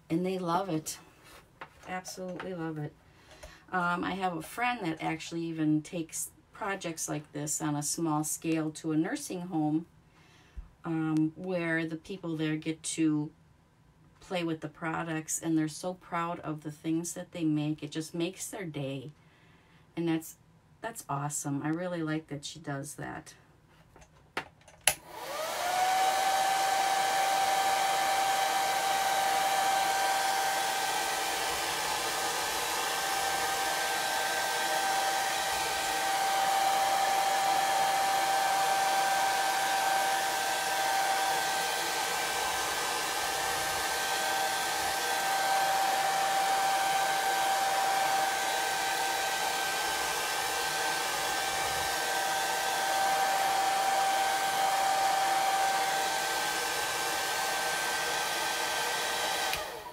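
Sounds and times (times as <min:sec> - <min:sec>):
hair dryer switch click: 0:24.8 - 0:25.2, 0:59.4 - 0:59.8
hair dryer running: 0:24.8 - 0:59.9.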